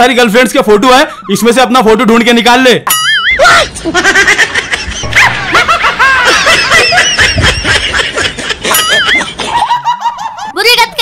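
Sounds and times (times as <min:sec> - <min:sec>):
people laughing and giggling: 0:03.4 - 0:10.7.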